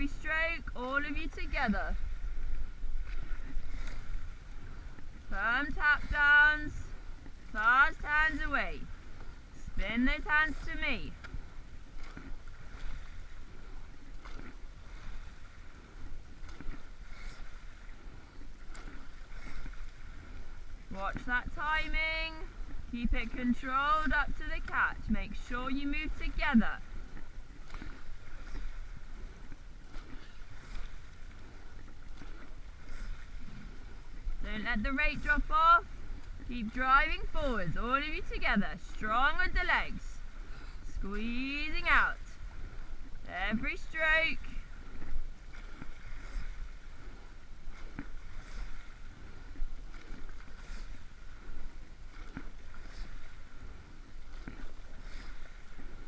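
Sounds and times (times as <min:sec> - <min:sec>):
steady low rumble: 0:00.0 - 0:55.0
oars knocking and splashing: 0:00.0 - 0:56.0
water running past boat hull: 0:00.0 - 0:56.0
oar stroke knocks: 0:49.6 - 0:53.6.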